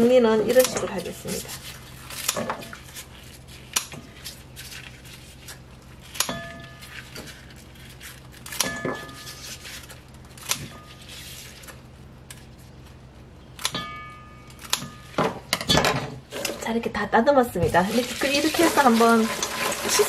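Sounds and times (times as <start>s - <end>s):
scissors snipping: 0.4s - 2.4s, 5.5s - 9.2s.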